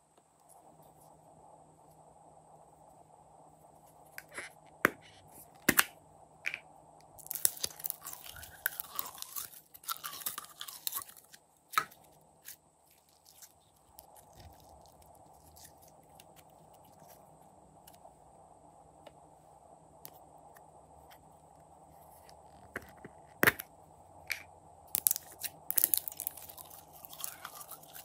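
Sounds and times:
slime crackling and squelching: 7.2s - 17.2s, 24.9s - 28.0s.

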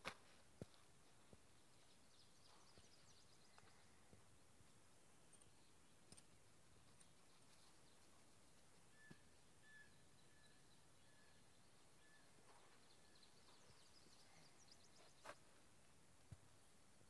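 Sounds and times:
faint high chirps: 6.9s - 15.6s.

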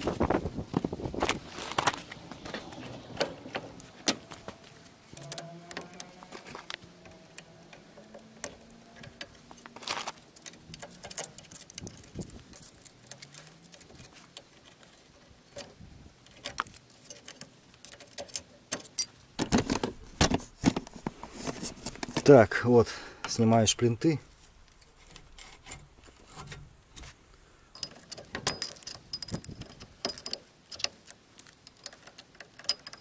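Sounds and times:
metallic clicks of tools on brakes: 1.8s - 19.3s, 27.7s - 33.0s.

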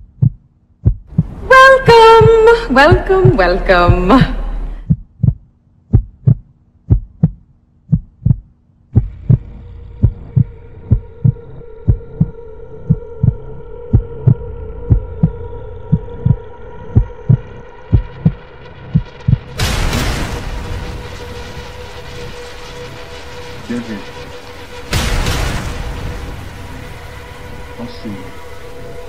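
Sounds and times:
heartbeat thumps: 0.0s - 19.8s
droning hum: 0.0s - 29.0s.

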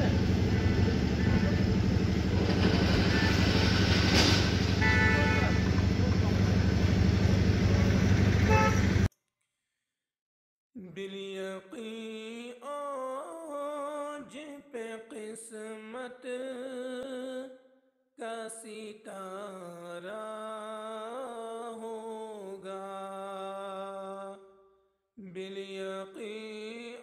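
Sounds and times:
person singing devotional song: 10.8s - 17.6s, 18.2s - 24.6s, 25.2s - 27.0s.

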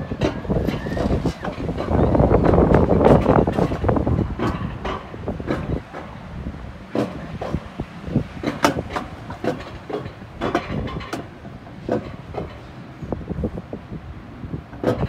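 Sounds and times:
sled clacking over rails: 0.0s - 13.9s, 14.5s - 15.0s
coaster sled wheels rumbling: 0.0s - 15.0s.

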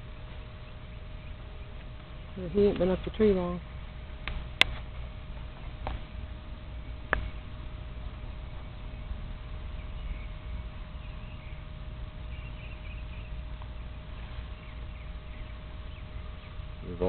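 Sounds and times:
faint steady hum: 0.0s - 17.0s
faint high chirps: 8.3s - 17.0s.

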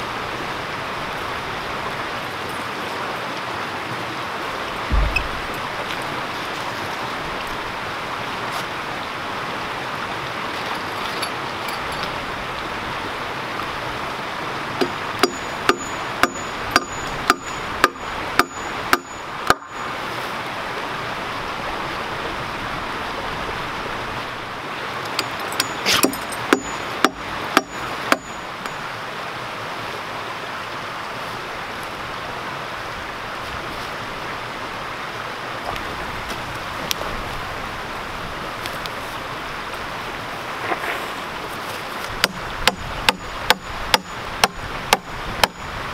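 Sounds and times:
creek rushing: 0.0s - 45.9s
hammer striking nail: 14.8s - 19.7s, 25.2s - 28.3s.

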